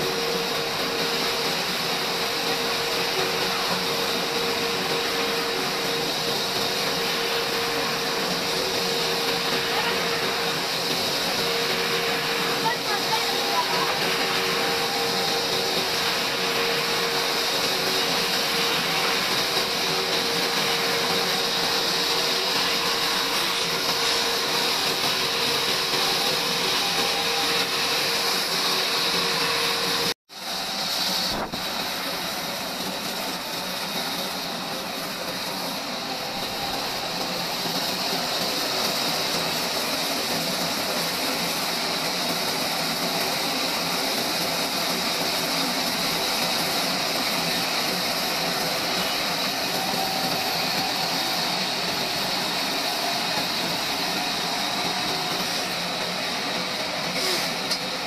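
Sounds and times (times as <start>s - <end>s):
band saw cutting log: 47.2s - 57.9s.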